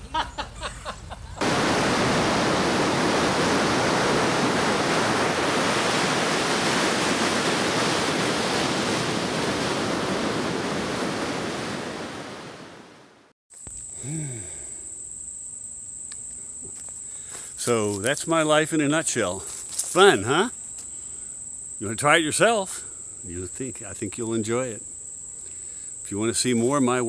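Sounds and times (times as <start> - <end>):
ocean surf breaking: 1.4 - 13.3.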